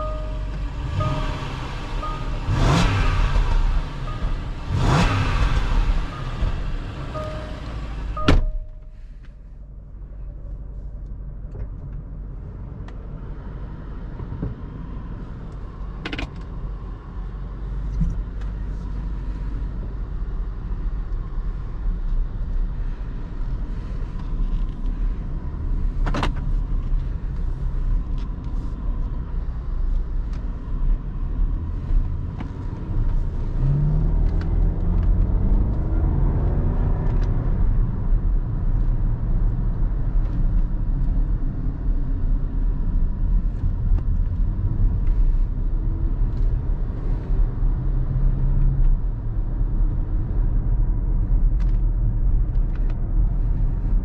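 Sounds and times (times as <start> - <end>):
car engine rumble: 0.0 - 54.0
car door shutting: 6.2 - 8.9.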